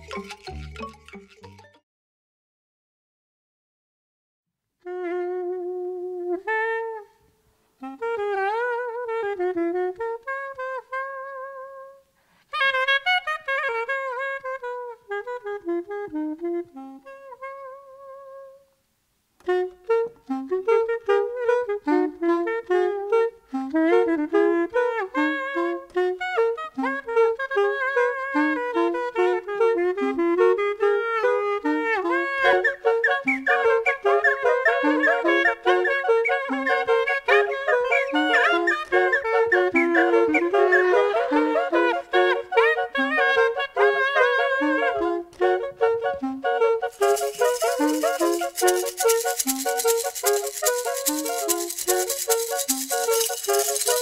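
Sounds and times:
wind instrument solo melody: 0.0 - 1.8, 19.4 - 54.0.

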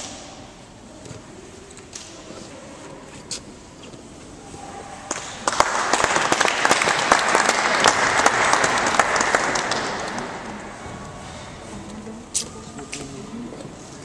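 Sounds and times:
crowd applauding: 5.1 - 10.7.

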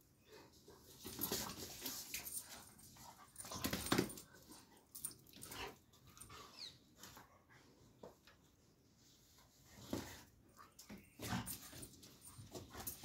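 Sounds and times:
dog scuffling with chew toy: 1.0 - 4.2.

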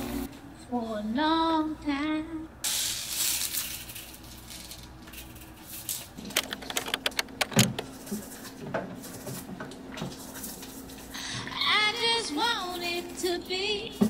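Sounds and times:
faint steady hum: 0.0 - 2.7
small clicks and knocks: 6.2 - 7.9.

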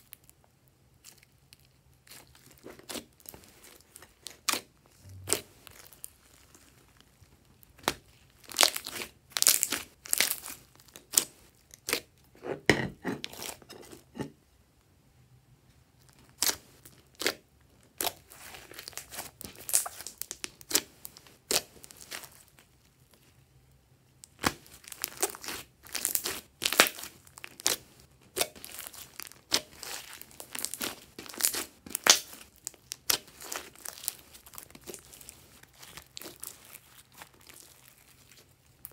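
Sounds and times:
slime popping and crackling: 7.8 - 12.0, 18.0 - 20.9, 24.2 - 38.9
hands squeezing slime: 16.2 - 22.6, 24.3 - 38.9.

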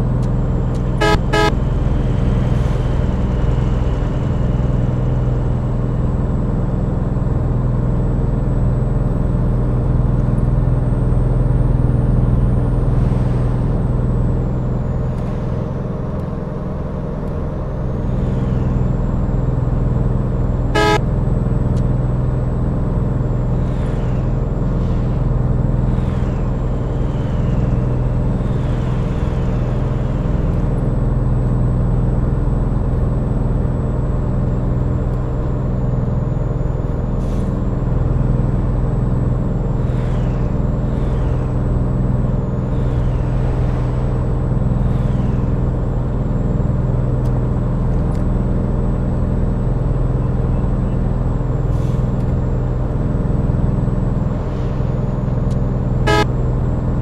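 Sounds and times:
vehicle engine running: 0.0 - 57.0
short horn toot: 1.0 - 1.6, 20.8 - 21.0, 56.1 - 56.3.

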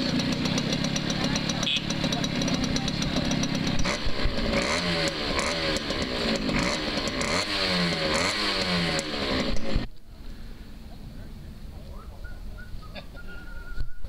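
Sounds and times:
moped engine revving: 0.0 - 14.0.

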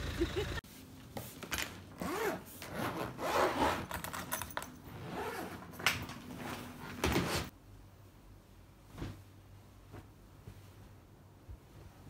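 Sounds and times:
suitcase zipper pulls: 2.0 - 5.8.

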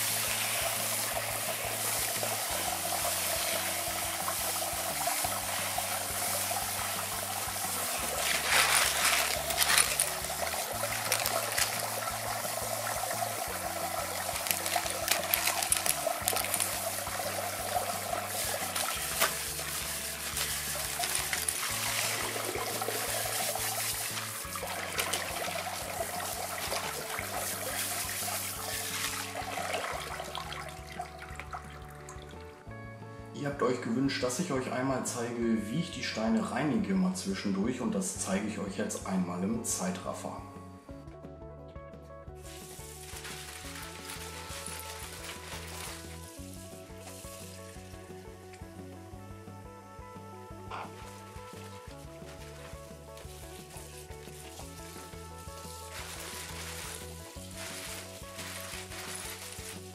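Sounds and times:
hose nozzle spraying water: 0.0 - 32.2, 42.4 - 48.7, 50.5 - 59.9
wet stones clattering: 3.3 - 32.0, 42.4 - 48.7, 50.7 - 59.9.

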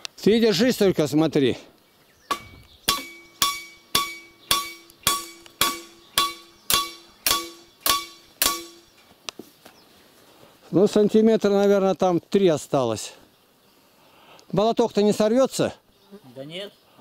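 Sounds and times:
hammer striking nail into wood: 2.3 - 8.8.

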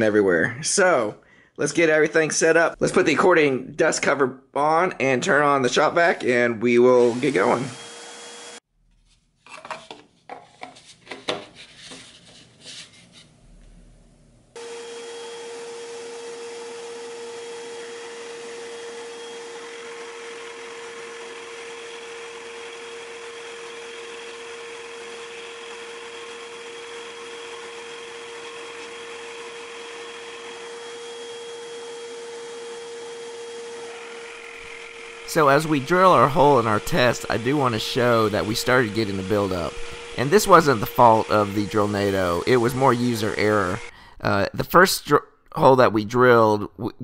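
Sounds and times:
shop vac whine: 5.4 - 8.6, 13.4 - 44.0
drill press boring wood: 6.9 - 8.6, 14.6 - 43.9.

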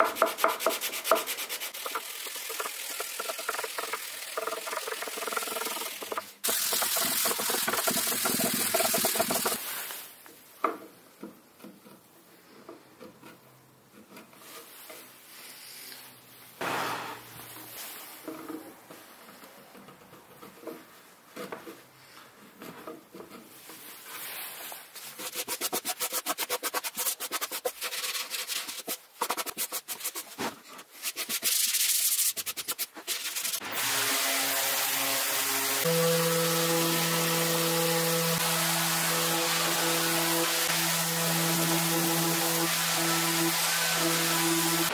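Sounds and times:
hand sanding wood: 0.0 - 9.7, 22.5 - 44.9
chisel paring and scraping: 10.6 - 15.1, 18.2 - 24.0
quick rubbing strokes: 23.5 - 33.6.

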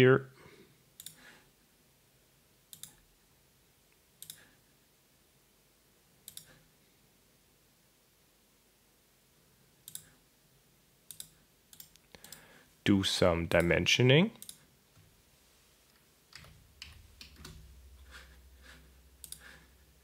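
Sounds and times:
computer mouse clicks: 1.0 - 1.2, 2.7 - 3.1, 4.2 - 4.6, 6.2 - 6.7, 9.8 - 10.2, 11.1 - 12.5, 14.4 - 14.7, 16.3 - 18.1, 19.2 - 19.7.

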